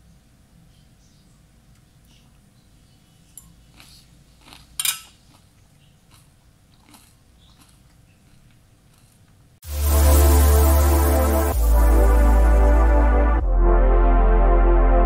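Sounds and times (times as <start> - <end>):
fork clicking on a plate: 3.4 - 5.4
loud electronic music: 9.6 - 15.0.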